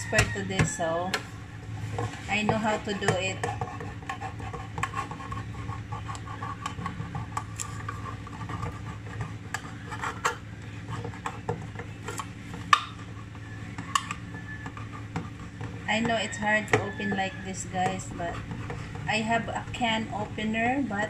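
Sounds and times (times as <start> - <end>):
knife clicking and scraping on metal can: 2.9 - 13.2.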